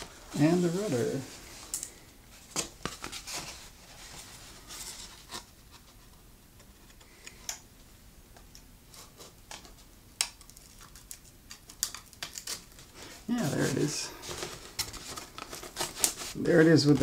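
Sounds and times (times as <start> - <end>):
foam parts clicking and tapping: 8.4 - 12.6.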